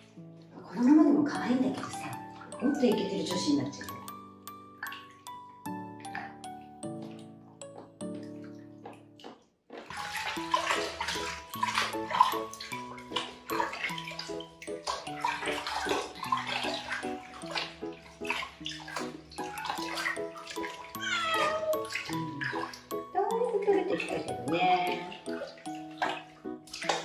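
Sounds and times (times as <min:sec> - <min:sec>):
water sloshing and splashing: 0:00.0 - 0:27.0
cat meowing: 0:21.0 - 0:21.9.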